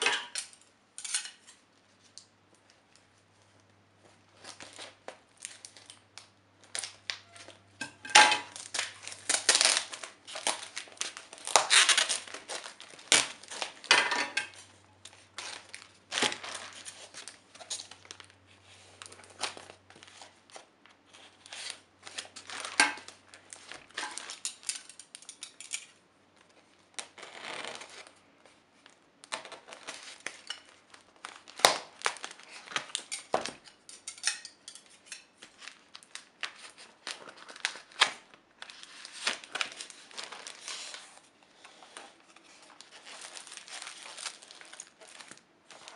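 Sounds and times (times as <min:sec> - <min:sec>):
scissors cutting packing tape: 0:08.5 - 0:13.7.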